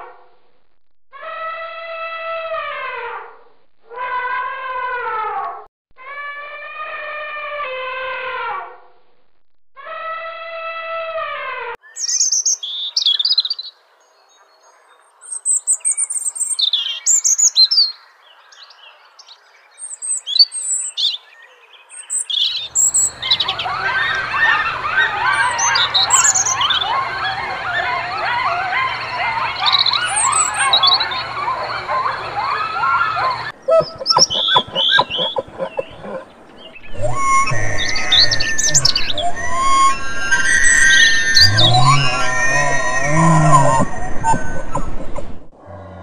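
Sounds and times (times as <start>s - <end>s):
birds chirping: 18.3s - 45.5s.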